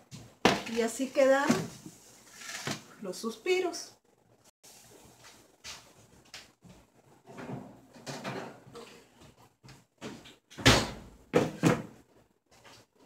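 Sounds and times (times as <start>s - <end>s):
metal baking trays clattering: 7.3s - 9.0s.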